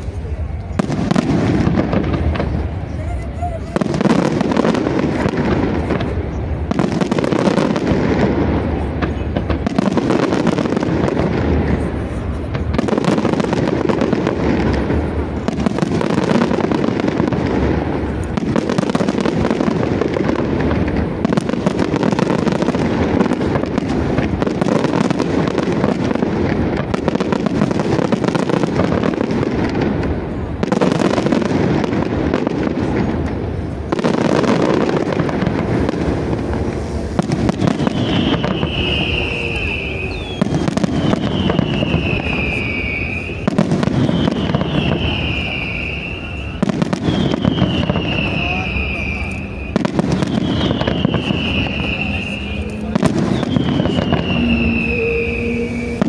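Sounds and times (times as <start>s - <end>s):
fireworks bursting and crackling: 0.0s - 56.0s.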